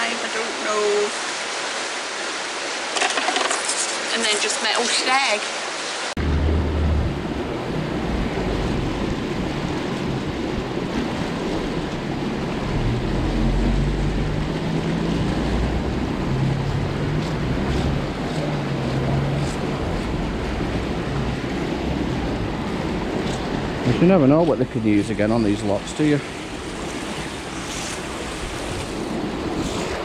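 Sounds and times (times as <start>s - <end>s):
water rushing into canal: 0.0s - 30.0s
low rumble: 6.2s - 24.5s.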